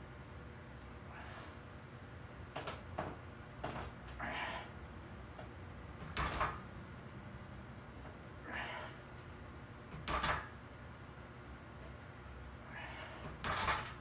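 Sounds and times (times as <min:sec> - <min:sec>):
barbell clanking on steel pins: 0:10.0 - 0:10.6, 0:13.4 - 0:14.0.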